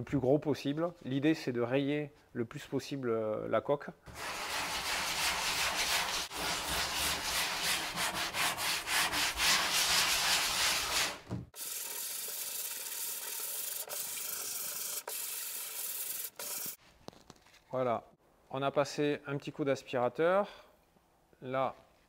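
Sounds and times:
sandpaper scrubbing plastic: 0:04.1 - 0:16.8.

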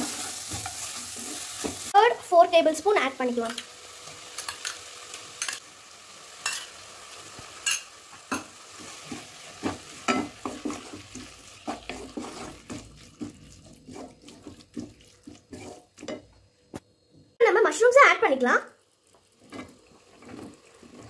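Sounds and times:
wooden spatula scraping a pan: 0:00.0 - 0:01.9, 0:08.8 - 0:16.3
food sizzling in a pan: 0:00.0 - 0:21.0.

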